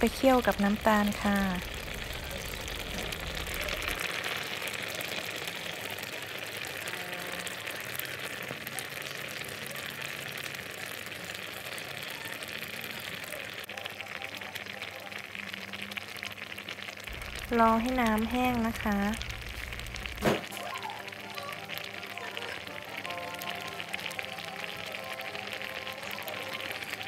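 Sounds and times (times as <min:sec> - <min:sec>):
syrup bubbling and crackling in a pan: 0:00.0 - 0:27.0.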